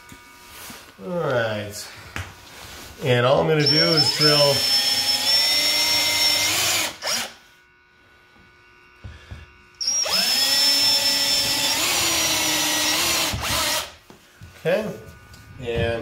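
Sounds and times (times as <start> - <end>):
cordless drill whining: 3.4 - 7.5, 9.0 - 14.0.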